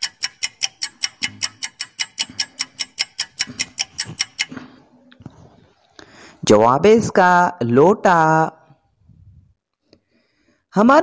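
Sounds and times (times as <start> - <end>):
fast clock ticking: 0.0 - 4.8.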